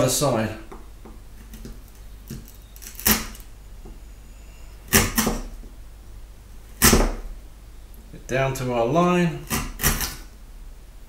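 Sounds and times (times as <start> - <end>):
chisel crunching through wood: 1.4 - 3.4, 4.9 - 5.5, 6.8 - 7.3, 9.4 - 10.3.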